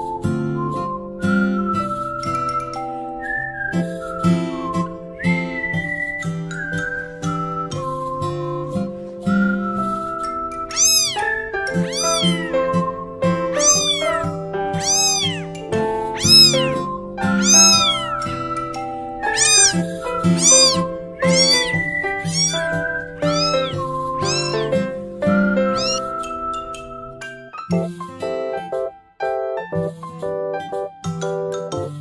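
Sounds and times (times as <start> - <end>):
kitten meowing: 10.7 - 12.7, 13.5 - 18.2, 19.3 - 24.8, 25.7 - 26.1.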